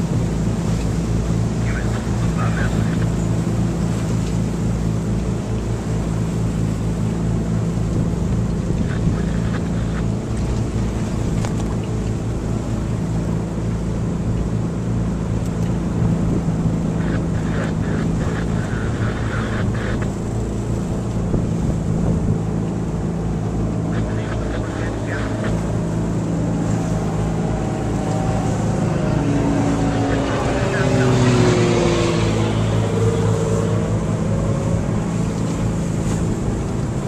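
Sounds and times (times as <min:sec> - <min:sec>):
boat engine running: 0:00.0 - 0:37.0
water splashing: 0:00.0 - 0:37.0
wind on microphone: 0:07.8 - 0:12.4, 0:15.9 - 0:22.6.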